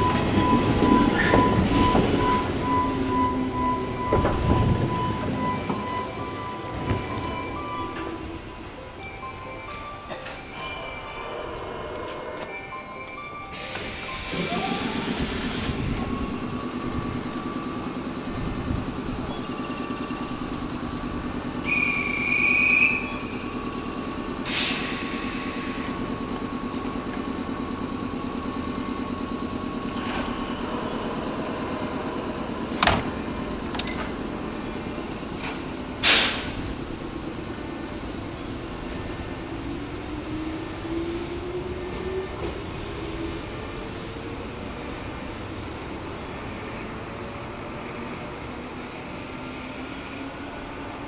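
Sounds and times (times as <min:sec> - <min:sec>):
electric train humming and whining: 0:00.0 - 0:51.0
hiss: 0:13.6 - 0:16.0, 0:24.4 - 0:26.0, 0:36.0 - 0:36.7.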